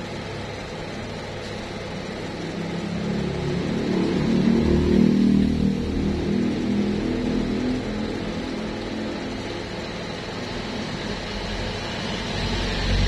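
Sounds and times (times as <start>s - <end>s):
vehicle engine running: 0.0s - 13.0s.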